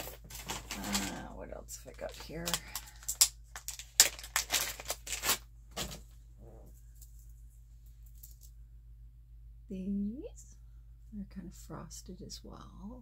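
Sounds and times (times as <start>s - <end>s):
faint handling noise: 4.8s - 8.6s.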